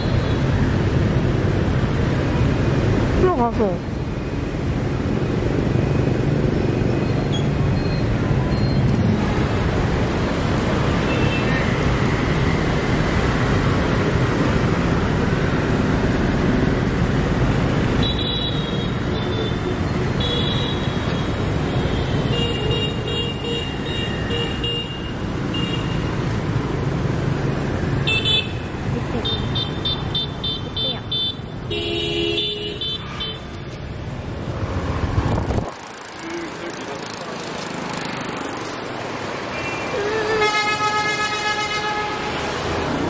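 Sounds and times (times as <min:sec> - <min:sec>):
motorbikes and cars passing: 0:00.0 - 0:43.0.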